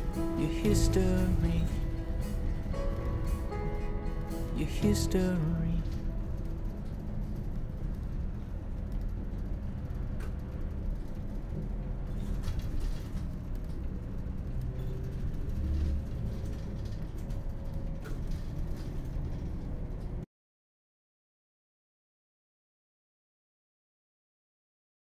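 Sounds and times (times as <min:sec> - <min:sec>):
bus engine and road rumble: 0:00.0 - 0:20.3
light clicks and rattles: 0:00.6 - 0:20.2.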